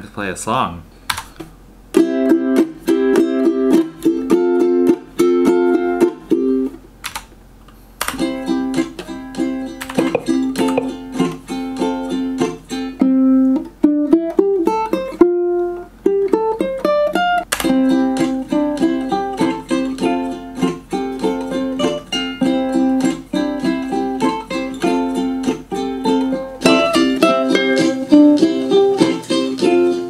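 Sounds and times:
solo ukulele playing: 0:01.9 - 0:06.8, 0:08.2 - 0:30.0.

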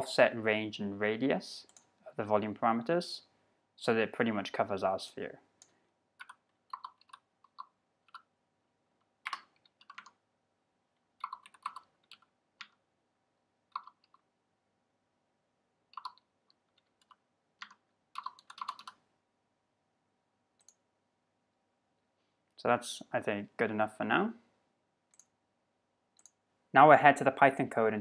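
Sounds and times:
computer keyboard typing: 0:06.2 - 0:08.3, 0:09.2 - 0:10.2, 0:11.2 - 0:12.8, 0:13.7 - 0:14.2, 0:15.9 - 0:19.0.

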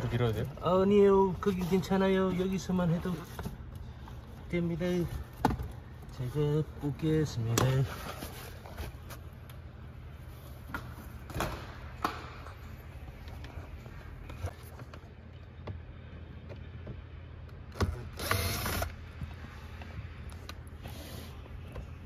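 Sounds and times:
loud mechanical whirr: 0:17.9 - 0:19.0.

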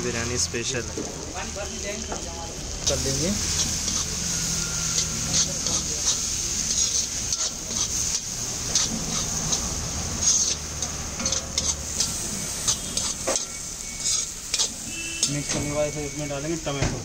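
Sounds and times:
food sizzling: 0:00.0 - 0:17.0
metal spatula scraping a wok: 0:03.4 - 0:15.9.

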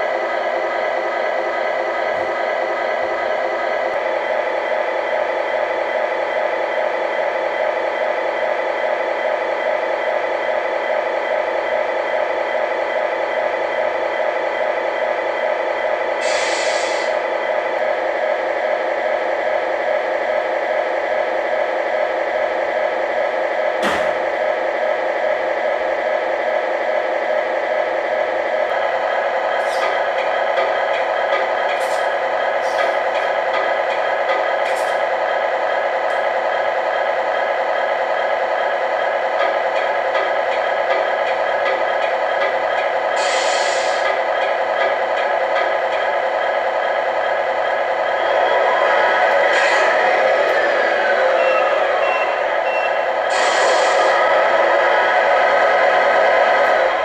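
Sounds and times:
air hiss: 0:16.2 - 0:17.2, 0:43.2 - 0:44.0, 0:53.3 - 0:54.2.

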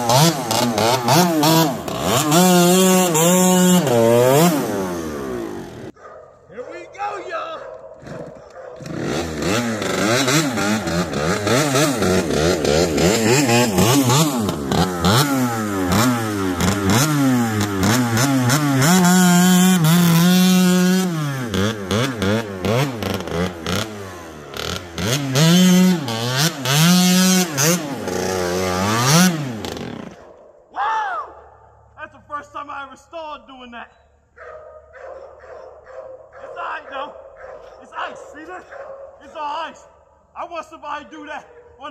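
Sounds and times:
dirt bike engine revving: 0:00.0 - 0:06.0, 0:08.0 - 0:30.3.

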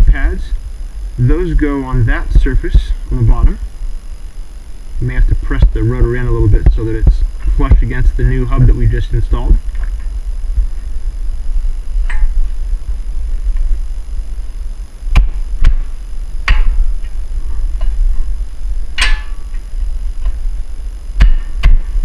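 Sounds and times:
steady low hum: 0:00.0 - 0:22.0
sharp knocks: 0:15.1 - 0:16.8, 0:19.0 - 0:19.6, 0:21.2 - 0:21.9.

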